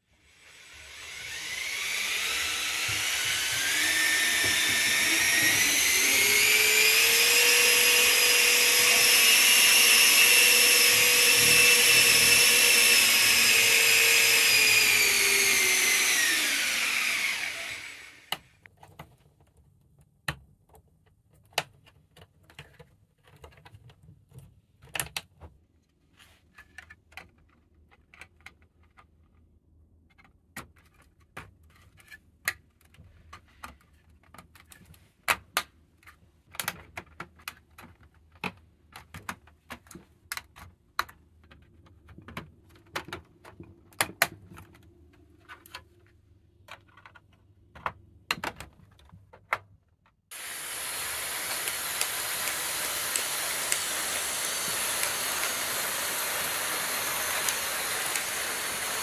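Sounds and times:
electric motor whine: 0:00.2 - 0:18.3, 0:50.3 - 0:59.0.

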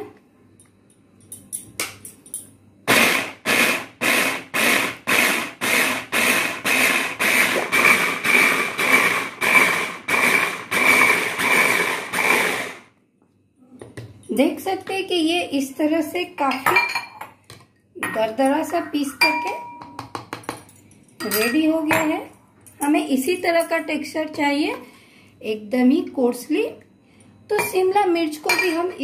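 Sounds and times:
vegetable chopper whirring: 0:02.9 - 0:12.9.

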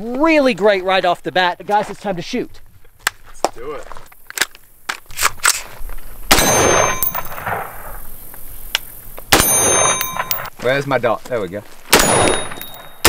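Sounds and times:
steel target plate ringing: 0:06.3 - 0:07.5, 0:09.4 - 0:10.5, 0:12.0 - 0:13.0
rifle shots: 0:06.3 - 0:08.0, 0:09.3 - 0:10.5, 0:11.9 - 0:13.0.

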